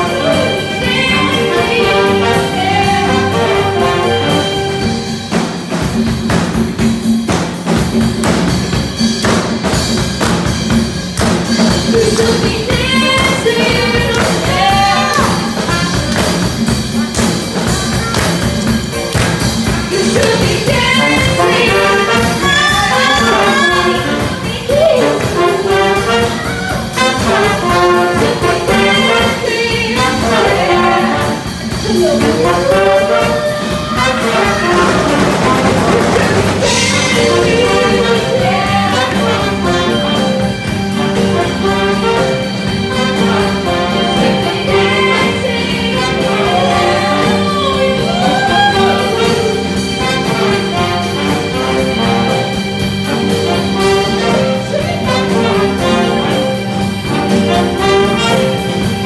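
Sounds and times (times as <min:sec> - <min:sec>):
people singing: 0:00.0 - 0:05.0, 0:11.6 - 0:40.4, 0:41.1 - 0:52.6
brass section: 0:00.0 - 0:06.0, 0:11.6 - 0:59.0
live band playing disco: 0:00.0 - 0:59.0.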